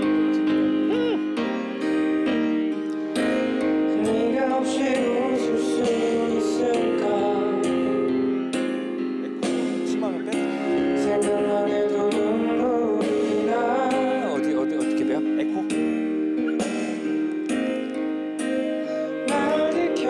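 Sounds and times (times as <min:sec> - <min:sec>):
piano chords: 0:00.0 - 0:20.0
man singing into a microphone: 0:03.2 - 0:15.8, 0:18.8 - 0:20.0.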